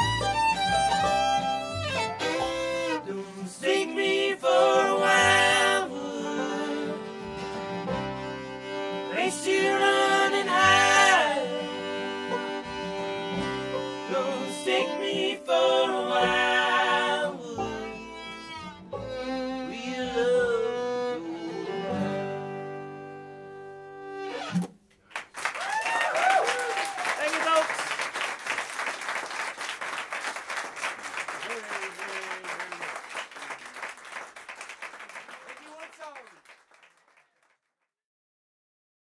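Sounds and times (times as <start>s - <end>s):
fiddle: 0.0s - 24.6s
upright bass: 0.0s - 24.6s
banjo: 0.0s - 24.7s
guitar: 0.0s - 24.7s
band singing in harmony: 3.0s - 7.2s, 9.0s - 11.7s, 14.0s - 18.0s.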